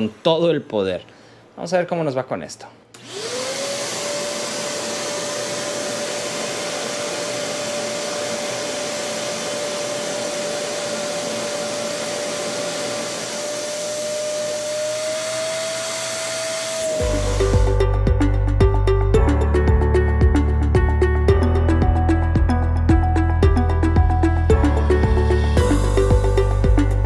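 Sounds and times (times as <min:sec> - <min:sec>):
vacuum motor whine: 0:03.0 - 0:17.8.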